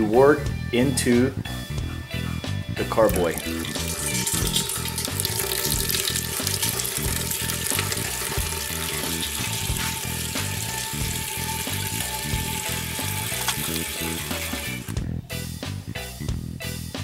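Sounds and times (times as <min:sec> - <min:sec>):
background music with beat: 0:00.0 - 0:17.0
liquid pouring into funnel: 0:03.0 - 0:15.0.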